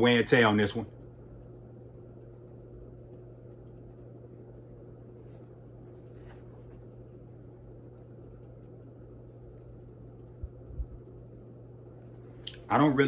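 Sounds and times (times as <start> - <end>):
steady low hum: 0.0 - 13.0
soft low thumps: 10.2 - 11.3.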